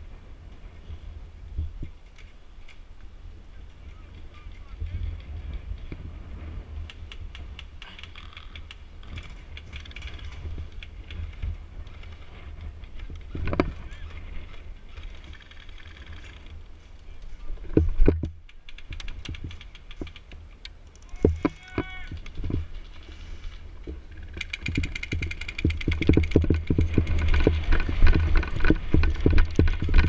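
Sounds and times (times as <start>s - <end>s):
wind rumbling on microphone: 0.0s - 30.0s.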